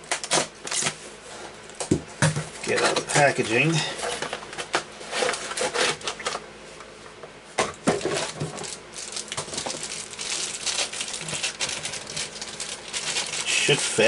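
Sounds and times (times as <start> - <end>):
packaging crinkling: 7.9 - 14.0.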